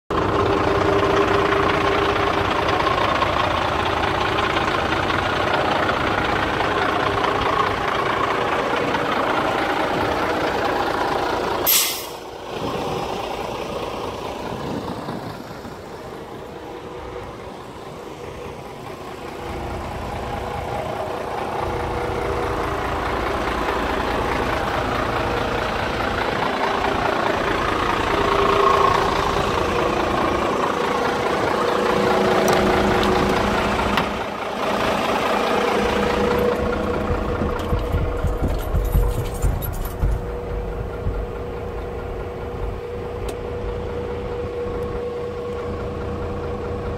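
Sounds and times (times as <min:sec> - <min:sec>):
diesel engine idling: 0:00.1 - 0:46.9
air brake hiss: 0:11.7 - 0:12.2.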